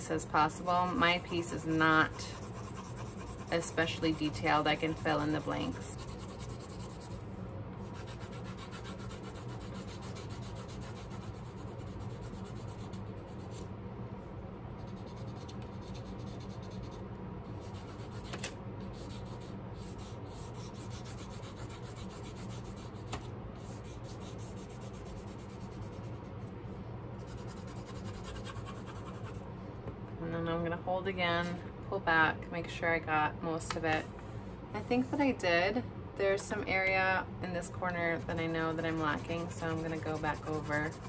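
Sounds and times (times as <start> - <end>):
pencil scratching on paper: 0.6 - 7.2, 7.9 - 13.6, 19.0 - 23.0, 23.6 - 26.1, 27.3 - 29.4, 38.2 - 41.0.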